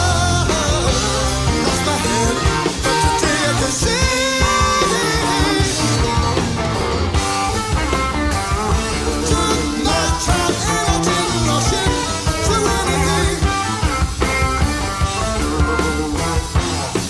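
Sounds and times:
rock band playing live: 0.0s - 17.0s.

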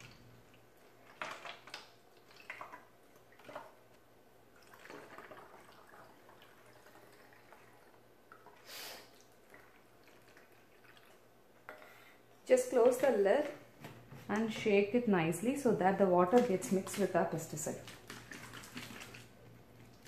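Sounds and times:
water trickling through a funnel: 0.0s - 11.4s, 16.3s - 20.0s.

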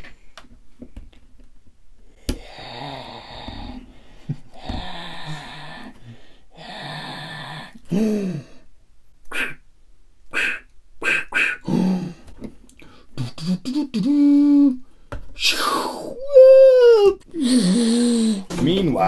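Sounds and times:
grunt-like voiced noises: 2.2s - 8.6s, 13.2s - 14.8s
man making mouth sound effects: 9.2s - 9.7s, 10.3s - 12.2s, 13.1s - 17.9s.

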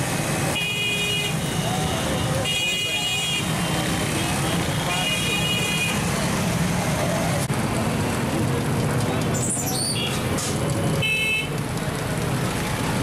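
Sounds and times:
motorcycle and truck engines: 0.0s - 13.0s
vehicle horn: 0.6s - 3.5s.

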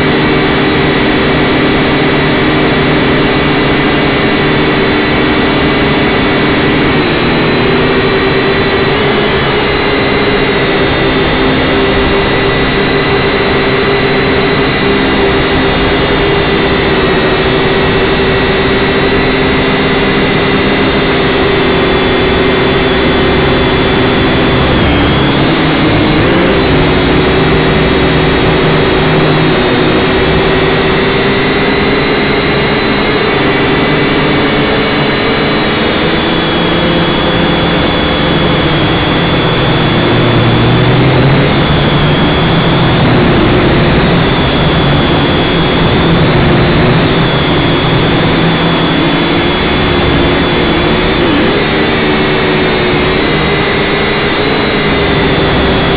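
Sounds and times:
quadcopter motors whining: 0.0s - 55.9s.

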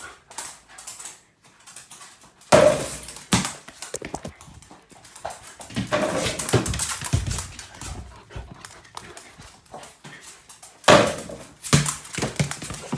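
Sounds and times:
knocks and bumps on hard floor: 5.6s - 9.1s, 10.9s - 12.9s.

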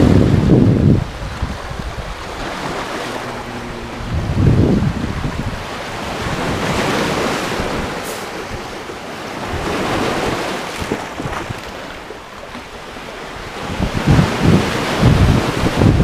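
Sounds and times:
small waves washing over rocks: 0.0s - 16.0s.

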